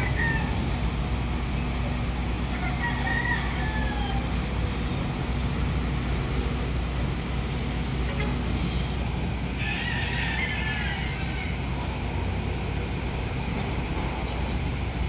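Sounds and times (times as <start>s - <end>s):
rooster crowing: 0.0s - 0.6s, 2.5s - 4.4s, 9.5s - 11.8s
low engine hum: 0.0s - 15.0s.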